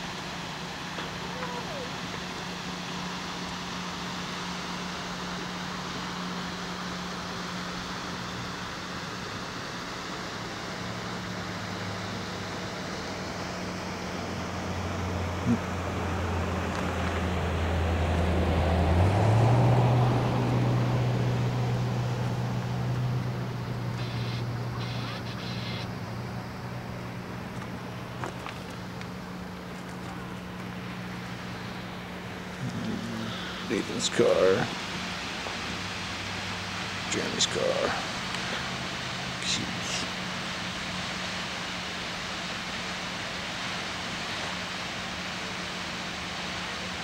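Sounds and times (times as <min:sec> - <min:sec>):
steady low hum: 0:00.0 - 0:45.5
road noise: 0:00.0 - 0:47.0
waterfall rushing: 0:26.6 - 0:47.0.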